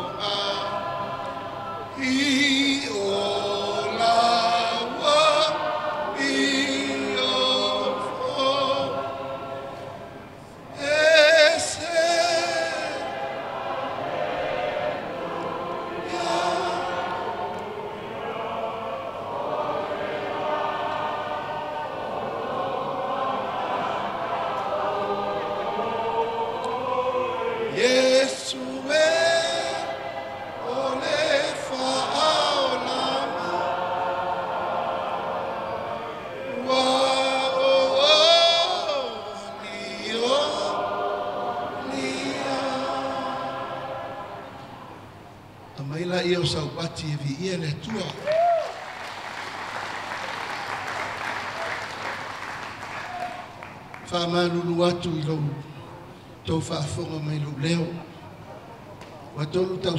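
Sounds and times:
group singing unaccompanied: 0.0s - 45.5s
audience applauding: 48.0s - 54.1s.

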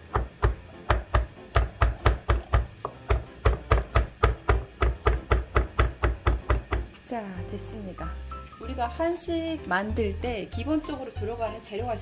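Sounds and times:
knife chopping on wooden board: 0.0s - 6.9s.

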